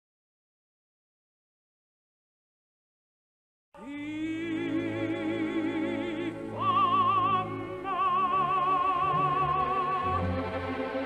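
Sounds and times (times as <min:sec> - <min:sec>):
woman singing opera with vibrato: 0:03.8 - 0:10.3.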